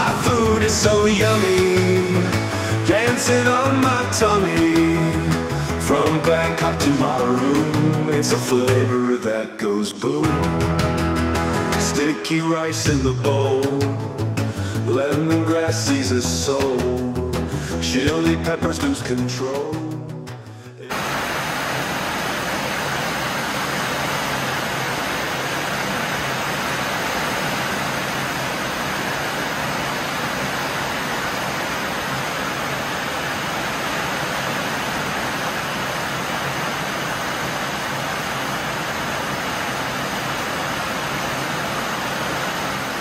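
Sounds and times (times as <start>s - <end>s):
heavy rain on a metal roof: 0.0s - 8.8s, 20.9s - 43.0s
water streaming off roof edge: 20.9s - 43.0s.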